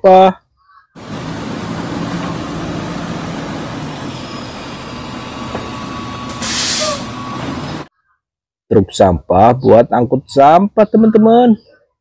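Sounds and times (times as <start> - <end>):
garbage truck diesel engine running: 1.0 - 7.9
air hiss: 6.3 - 7.2.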